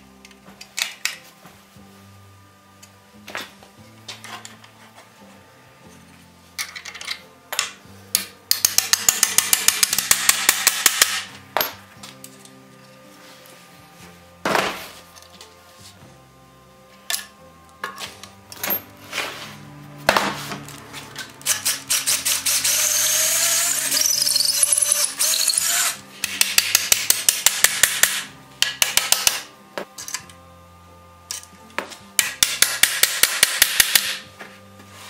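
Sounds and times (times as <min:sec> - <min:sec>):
cordless drill boring: 0:21.4 - 0:26.0
rapid drill clicking: 0:21.4 - 0:28.2.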